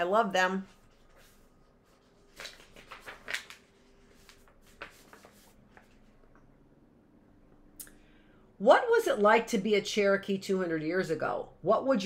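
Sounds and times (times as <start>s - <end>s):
paper pages rustling: 0.7s - 6.4s.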